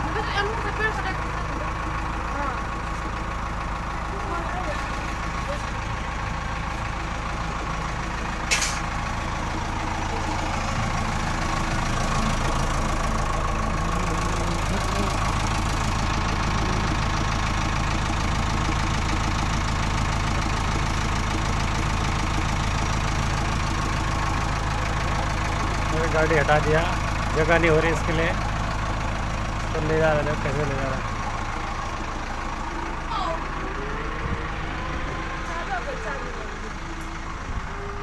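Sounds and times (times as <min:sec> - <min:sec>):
diesel engine running: 0:00.0 - 0:38.0
sharp click: 0:08.5 - 0:08.8.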